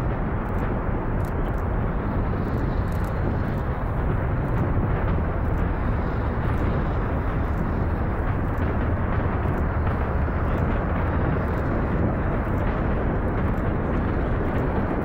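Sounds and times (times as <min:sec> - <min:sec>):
faint crackles: 0:00.0 - 0:15.0
rocket engines firing: 0:00.0 - 0:15.0.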